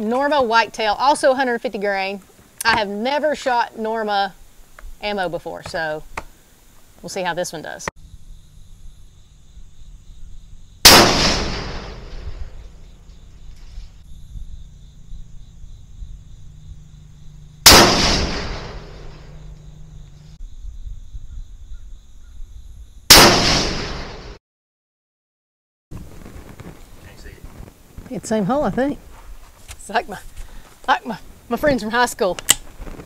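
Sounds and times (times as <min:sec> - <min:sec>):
rifle shots with echo: 0:10.8 - 0:12.7, 0:17.6 - 0:19.4, 0:23.1 - 0:24.3.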